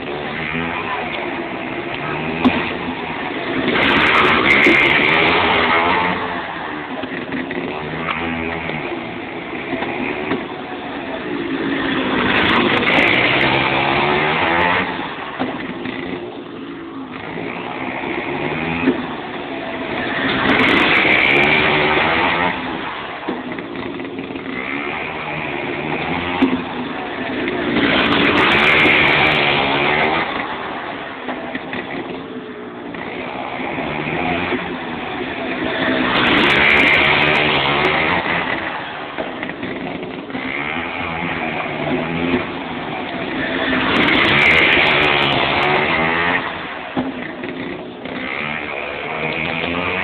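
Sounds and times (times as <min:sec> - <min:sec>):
kart engine revving: 0:00.0 - 0:50.0.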